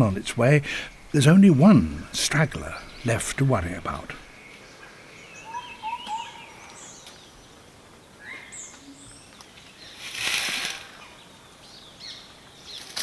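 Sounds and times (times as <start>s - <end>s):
high bird chirps: 5.3s - 7.2s
dry leaf litter rustling: 9.6s - 11.4s, 12.6s - 13.0s.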